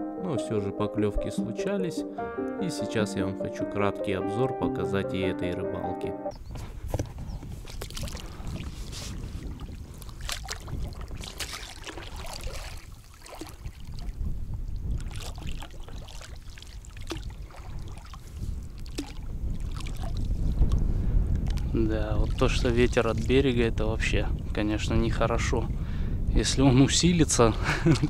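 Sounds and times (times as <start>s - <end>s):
wind rumble on microphone: 6.3s - 28.0s
water splashing against boat: 7.6s - 20.8s.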